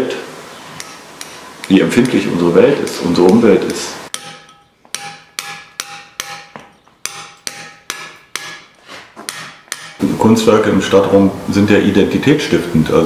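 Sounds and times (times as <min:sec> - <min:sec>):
hammer striking chisel on stone: 0:00.8 - 0:02.2, 0:04.1 - 0:10.0.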